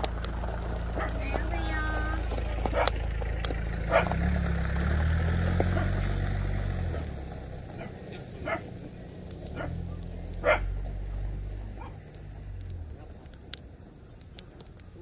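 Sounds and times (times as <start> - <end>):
dog barking: 1.0 - 1.2, 2.7 - 3.0, 3.9 - 4.2, 5.7 - 6.0, 7.7 - 8.8, 9.5 - 9.8, 10.4 - 10.8, 11.8 - 12.0.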